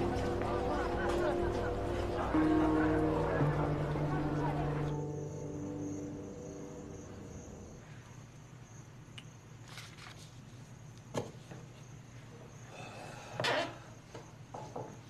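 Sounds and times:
background music: 0:00.0 - 0:07.8
crickets chirring: 0:00.0 - 0:15.0
paper rustling: 0:09.6 - 0:10.6.

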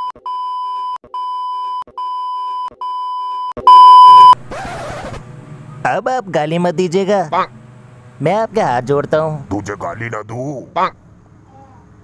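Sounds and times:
electronic beeps: 0:01.2 - 0:04.4.

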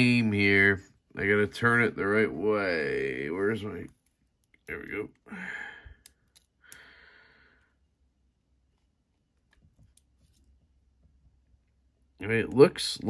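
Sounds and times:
man sighing: 0:05.3 - 0:07.6.

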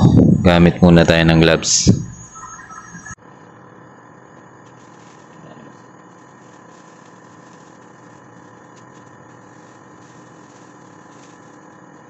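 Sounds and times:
steady background hum: 0:00.0 - 0:12.0
plastic gloves crinkling: 0:04.7 - 0:12.0.

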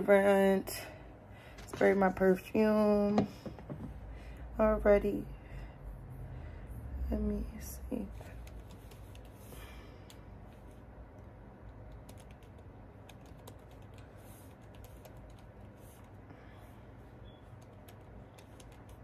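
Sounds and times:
fingers tapping touchscreen: 0:17.5 - 0:19.0.

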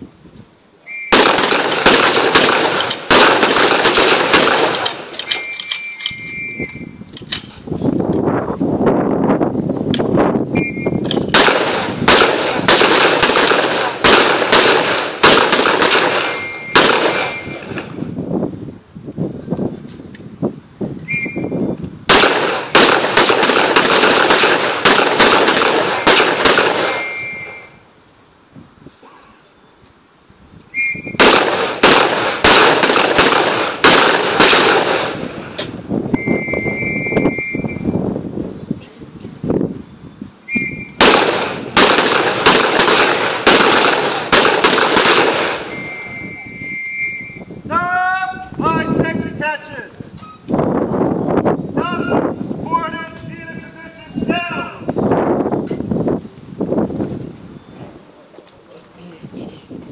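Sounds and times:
rifle shots echoing: 0:01.1 - 0:05.4, 0:11.3 - 0:17.9, 0:22.1 - 0:27.6, 0:31.2 - 0:35.5, 0:41.0 - 0:45.8
short high beep: 0:05.3 - 0:07.0, 0:10.6 - 0:11.0, 0:16.3 - 0:17.6, 0:26.9 - 0:27.8, 0:36.2 - 0:38.0, 0:45.7 - 0:47.5, 0:50.2 - 0:50.5
steady high tone: 0:16.3 - 0:17.6, 0:26.9 - 0:27.8, 0:45.7 - 0:47.4.

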